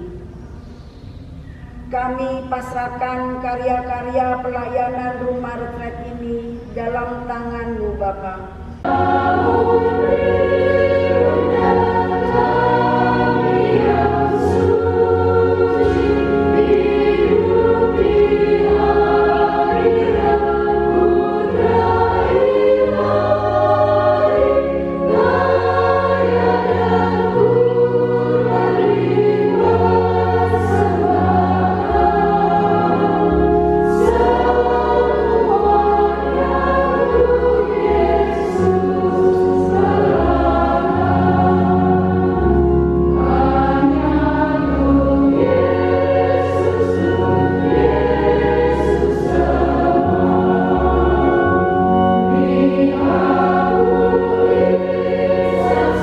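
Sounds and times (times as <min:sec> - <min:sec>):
low sustained notes: 0:00.0 - 0:56.0
women's choir singing a hymn: 0:01.9 - 0:56.0.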